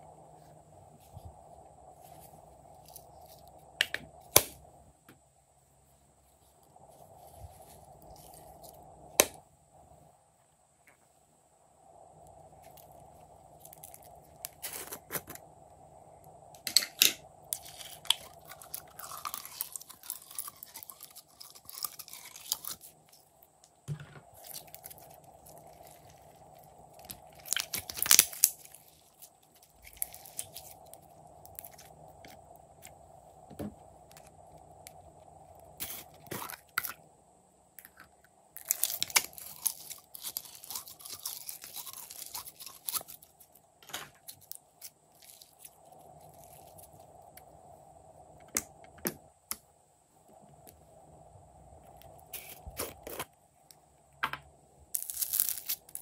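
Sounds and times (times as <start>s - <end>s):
slime clicking and crackling: 17.6s - 23.2s, 27.0s - 31.9s.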